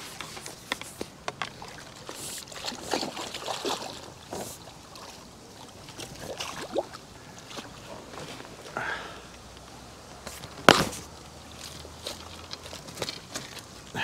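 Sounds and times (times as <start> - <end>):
fish splashing in water: 1.5 - 8.0.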